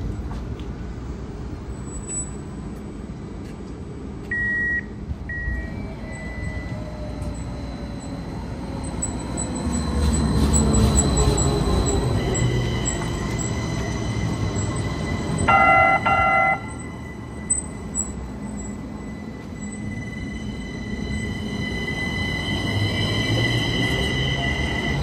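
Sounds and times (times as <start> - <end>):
short electronic beeps: 4.3 - 6.8
light rail motor whine: 4.9 - 25.0.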